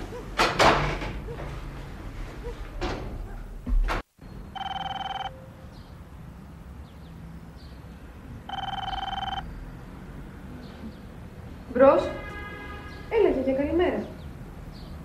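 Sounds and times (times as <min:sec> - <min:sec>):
landline telephone ringing: 0:04.6 - 0:05.4, 0:08.5 - 0:09.4.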